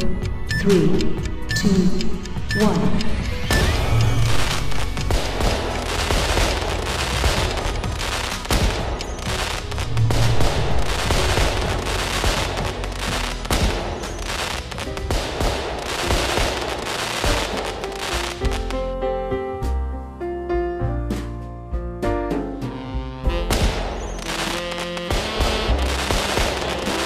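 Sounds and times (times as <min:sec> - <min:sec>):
music: 0:00.0 - 0:27.0
fireworks bangs and crackles: 0:03.5 - 0:18.8, 0:23.3 - 0:27.0.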